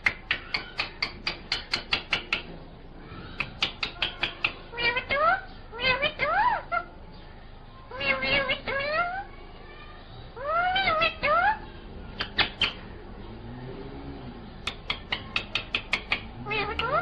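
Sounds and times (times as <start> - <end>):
sharp tapping: 0.0 - 2.5, 3.4 - 4.6, 14.6 - 17.0
parakeet calls: 3.2 - 7.2, 7.8 - 9.3, 10.4 - 13.0, 14.5 - 17.0.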